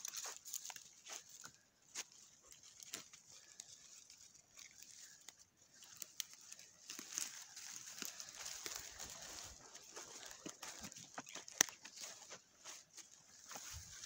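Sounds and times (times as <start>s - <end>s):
footsteps in dry leaves: 0.0s - 14.0s.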